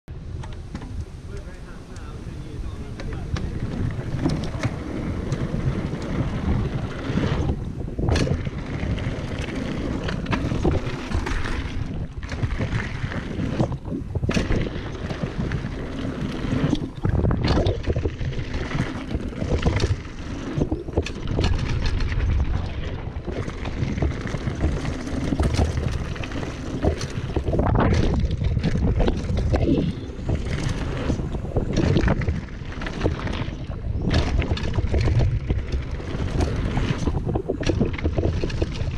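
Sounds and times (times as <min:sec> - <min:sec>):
bike tyres rolling on dirt: 0:00.1 - 0:38.9
wind buffeting microphone: 0:00.1 - 0:38.9
bike knocks and rattles: 0:02.8 - 0:38.9.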